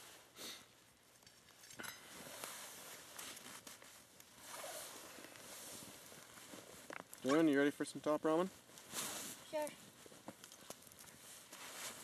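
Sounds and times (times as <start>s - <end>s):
clothing rustling: 2.3s - 6.9s, 11.1s - 12.0s.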